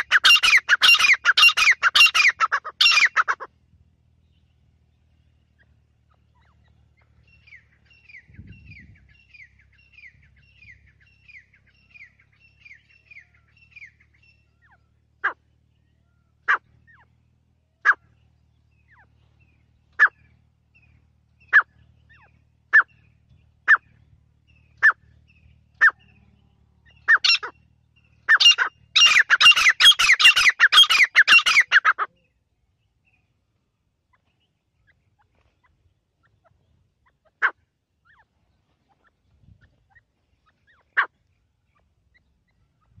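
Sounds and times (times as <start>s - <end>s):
francolin calling: 0.0s - 3.5s, 17.8s - 32.4s.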